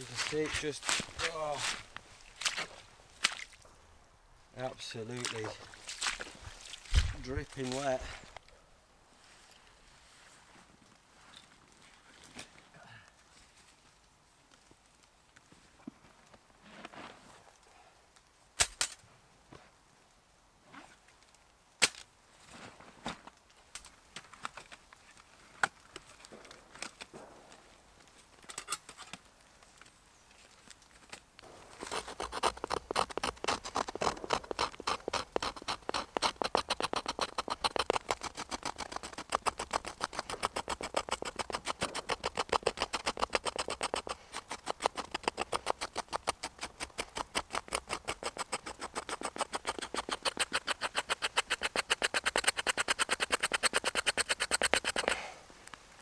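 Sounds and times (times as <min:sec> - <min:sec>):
knife scraping bark: 0:31.7 - 0:55.3
clicks and taps: 0:31.9 - 0:55.2.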